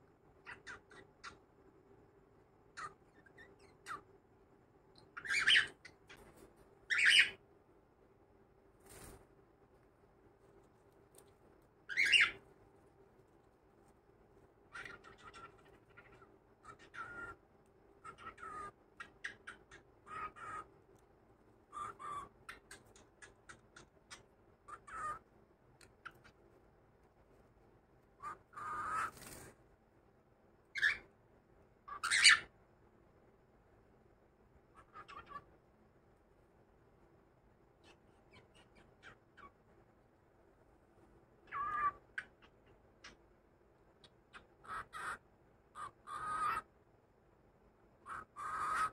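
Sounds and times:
cockatiel harsh calls: 0.4s - 1.4s, 2.7s - 4.1s, 5.2s - 7.4s, 11.9s - 12.4s, 14.7s - 17.4s, 18.0s - 20.8s, 21.7s - 25.3s, 28.2s - 29.5s, 30.7s - 31.1s, 31.8s - 32.5s, 34.7s - 35.5s, 37.8s - 39.6s, 41.4s - 43.2s, 44.0s - 46.7s, 48.0s - 48.9s.

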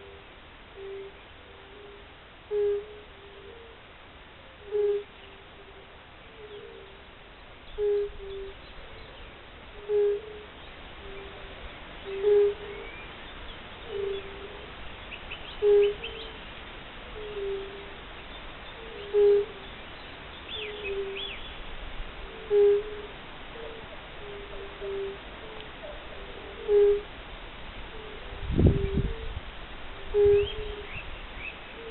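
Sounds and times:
toads calling: 0.0s - 3.8s, 4.4s - 7.1s, 7.7s - 16.5s, 17.1s - 27.2s, 27.8s - 31.9s
faint high bird chirps: 9.9s - 16.4s, 20.5s - 21.6s, 30.1s - 31.9s.

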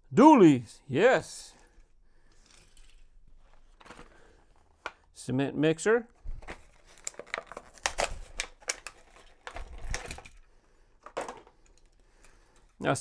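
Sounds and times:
plastic packaging clicks and crinkles: 6.2s - 12.6s.

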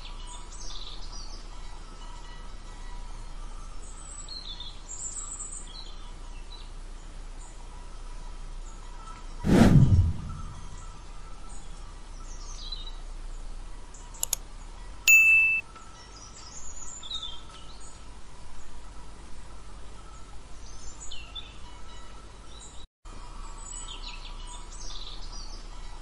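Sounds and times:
click: 14.2s - 14.4s
bright electronic ding: 15.1s - 15.6s.

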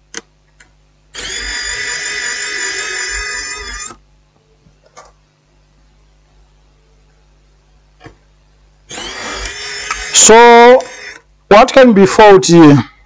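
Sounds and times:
electric screwdriver motor: 1.2s - 4.0s, 8.9s - 11.2s.

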